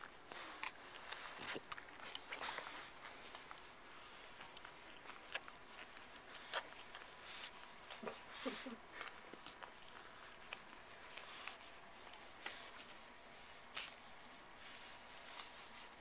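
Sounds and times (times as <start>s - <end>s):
puppy sucking clicks: 0.4s - 3.6s, 4.4s - 13.0s.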